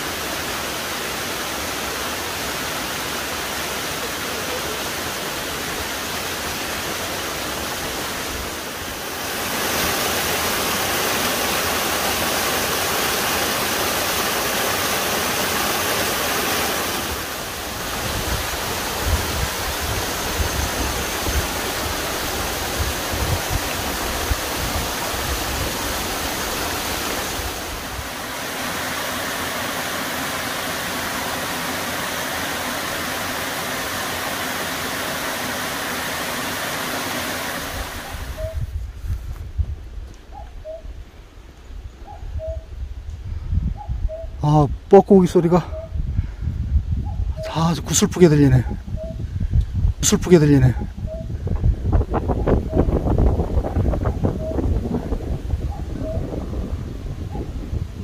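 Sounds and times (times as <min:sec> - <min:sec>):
waterfall rushing: 0:00.0 - 0:38.6.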